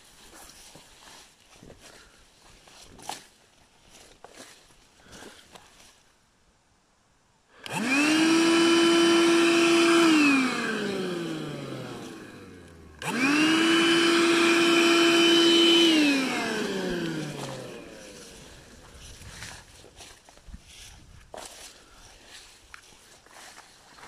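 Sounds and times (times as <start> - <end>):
vacuum cleaner motor whining: 7.6 - 19.2.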